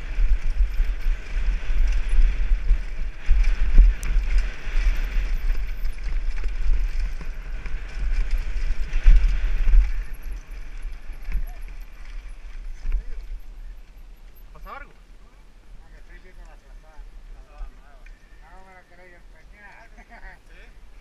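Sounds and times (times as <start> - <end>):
bike knocking and rattling: 0.0 - 15.0
wind buffeting microphone: 0.0 - 21.0.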